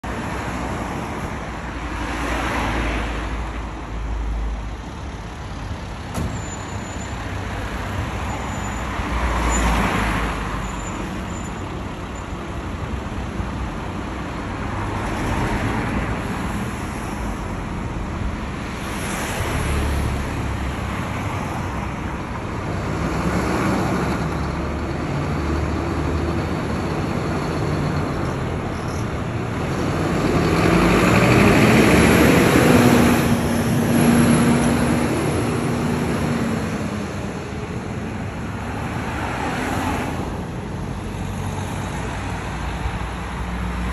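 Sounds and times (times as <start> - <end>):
fire engine diesel engine: 0.0 - 43.9
road traffic passing: 0.0 - 43.9.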